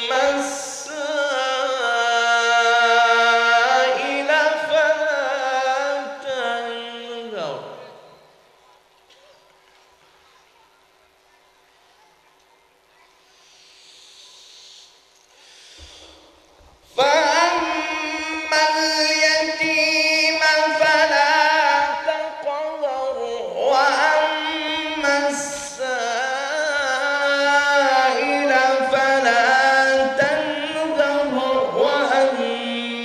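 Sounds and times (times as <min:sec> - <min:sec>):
man chanting recitation: 0:00.0 - 0:08.1, 0:16.9 - 0:33.0.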